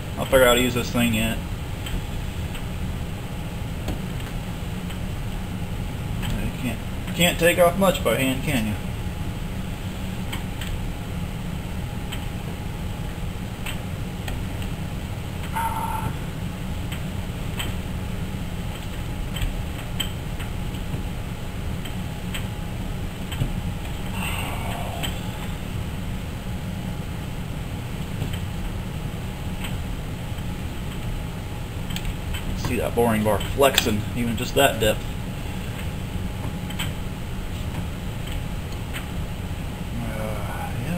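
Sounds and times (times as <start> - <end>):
steady low hum: 0.0 - 40.9
low rumble of shop noise: 8.4 - 40.9.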